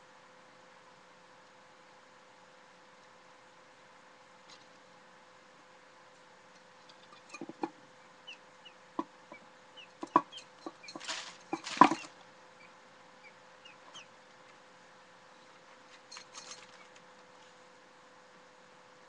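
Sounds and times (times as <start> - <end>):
guinea fowl pecking taps: 9.0 - 12.1.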